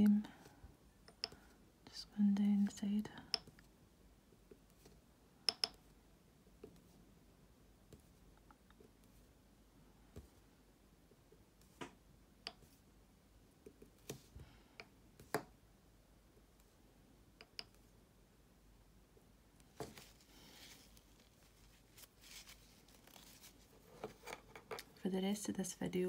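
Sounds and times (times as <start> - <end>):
faint clicks and taps: 1.0 - 1.5.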